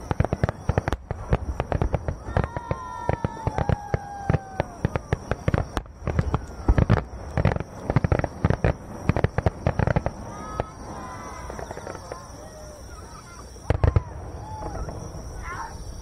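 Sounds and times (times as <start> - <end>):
firework shells bursting: 0.0 - 12.4.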